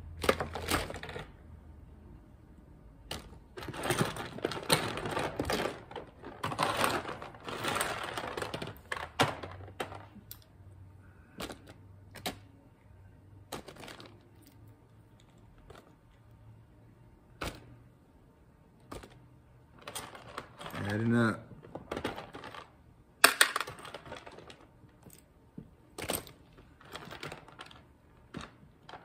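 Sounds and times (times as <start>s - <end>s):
small plastic pieces clattering: 0.1s - 1.4s, 3.1s - 10.5s, 13.5s - 16.0s, 19.8s - 25.2s, 25.9s - 29.0s
plastic bag crinkling: 3.6s - 10.0s, 26.0s - 29.0s.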